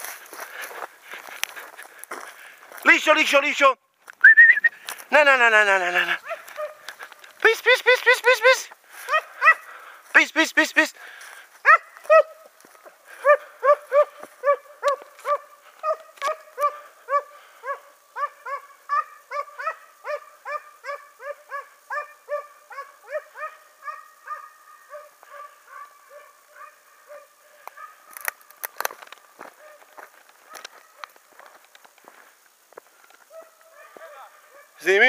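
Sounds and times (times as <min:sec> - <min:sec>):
hounds baying: 0:06.0 - 0:08.0, 0:09.0 - 0:10.0, 0:11.6 - 0:31.7, 0:33.2 - 0:34.8.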